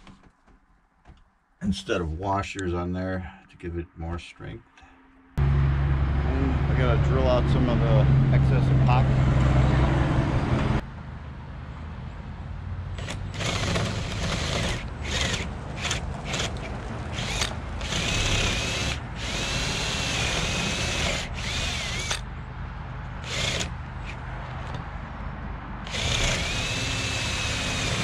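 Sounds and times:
cordless drill whining: 13.0s - 22.2s, 23.2s - 24.2s, 25.8s - 28.0s.

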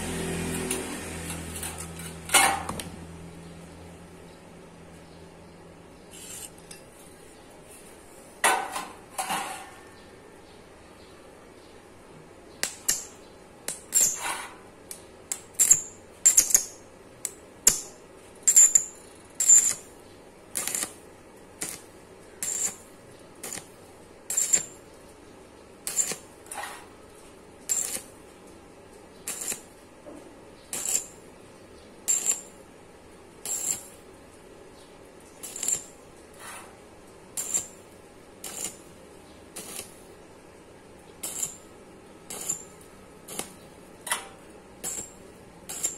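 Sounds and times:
welding arc crackling: 15.3s - 24.8s, 25.8s - 26.5s, 27.6s - 28.2s, 29.2s - 29.8s, 30.7s - 31.3s, 32.0s - 32.6s, 33.4s - 34.0s, 35.4s - 36.1s, 37.3s - 40.2s, 41.2s - 43.9s, 44.7s - 45.9s.

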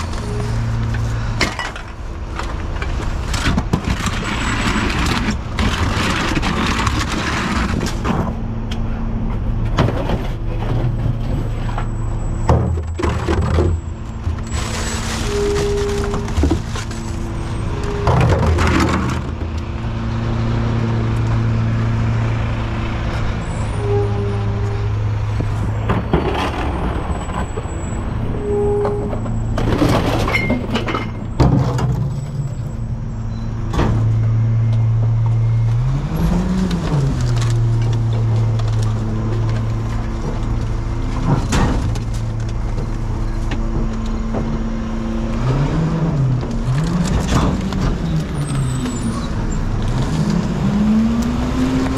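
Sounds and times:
truck engine revving: 32.1s - 51.9s.

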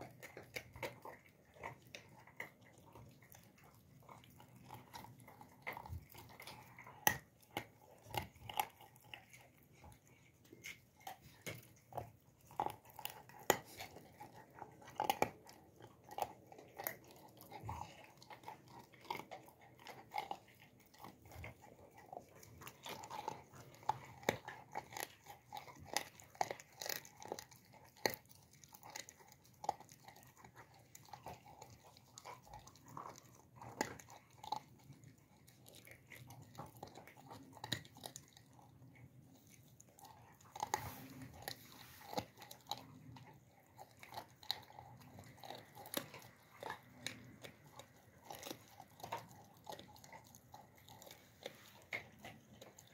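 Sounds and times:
puppy chewing and licking paws: 0.0s - 52.9s.

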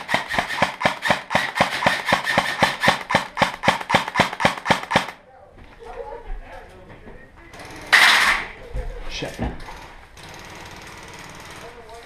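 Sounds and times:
airsoft gun full-auto firing: 0.0s - 5.2s, 7.6s - 8.5s.

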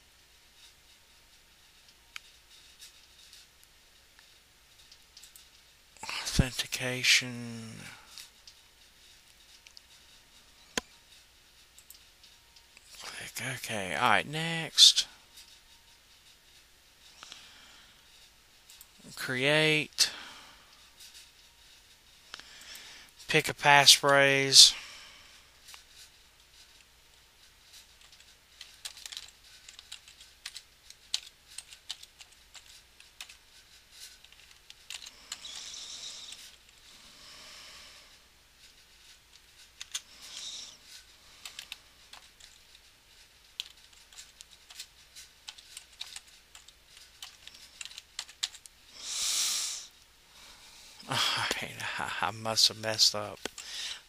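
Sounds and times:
typing on a computer keyboard: 28.0s - 33.4s, 34.1s - 35.7s, 39.8s - 40.0s, 41.4s - 42.6s, 43.6s - 48.7s.

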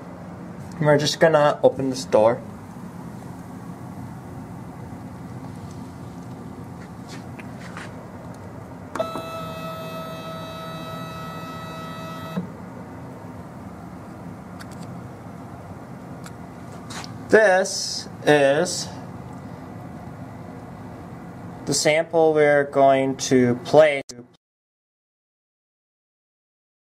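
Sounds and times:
low machine hum: 0.0s - 24.2s
motor click: 8.9s - 12.5s
electric motor whine: 9.0s - 12.5s.

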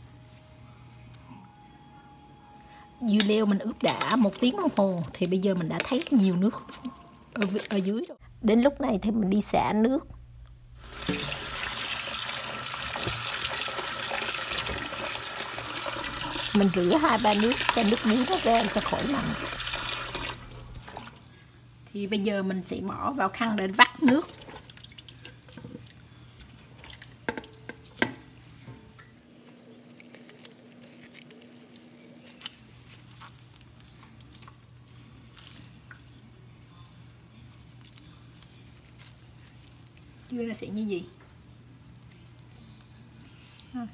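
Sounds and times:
tap water running into steel bowl: 10.8s - 21.0s.

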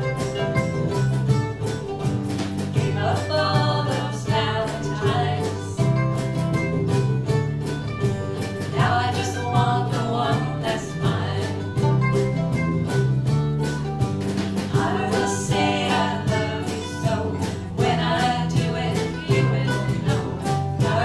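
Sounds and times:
acoustic band playing country: 0.0s - 21.0s
women singing: 2.7s - 6.0s, 8.6s - 11.8s, 14.6s - 21.0s.

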